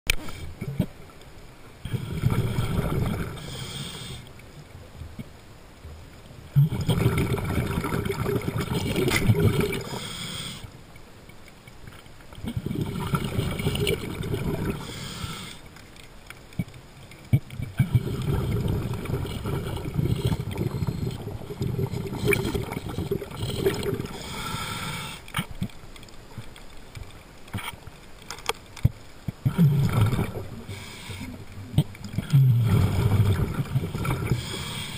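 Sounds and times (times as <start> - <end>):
diver exhaling gurgling bubbles: 1.8 - 4.2, 6.5 - 10.6, 12.4 - 15.6, 17.3 - 25.5, 29.4 - 34.9
faint clicks: 4.0 - 6.4, 8.9 - 12.6, 14.8 - 18.0, 20.1 - 32.4.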